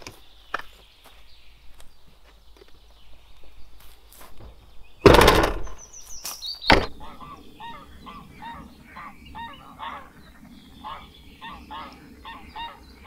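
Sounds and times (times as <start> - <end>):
car hatch slamming shut: 5.0 - 5.7, 6.7 - 7.0
sharp knock: 5.0 - 5.8
geese honking faintly: 6.9 - 13.0.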